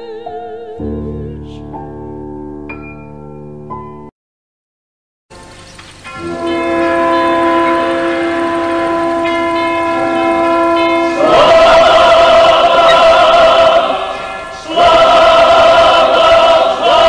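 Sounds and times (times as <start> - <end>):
choir holding sustained chords: 6.1 - 17.0.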